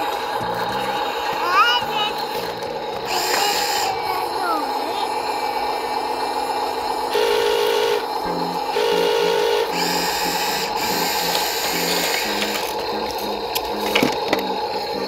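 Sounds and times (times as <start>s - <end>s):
toy motor and gears whirring: 0.0s - 15.0s
beeping electronic tune: 7.1s - 15.0s.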